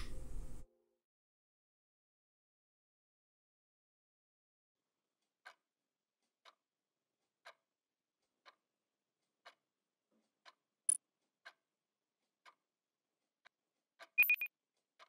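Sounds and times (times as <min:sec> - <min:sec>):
phone text message blip: 0:14.2 - 0:14.5.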